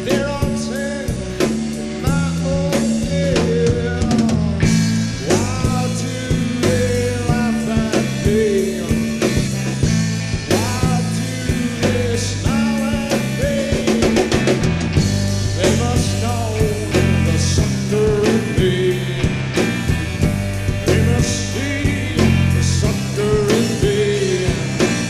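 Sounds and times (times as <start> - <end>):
drum kit beat: 0.0 - 25.0
stepping bass line: 0.0 - 25.0.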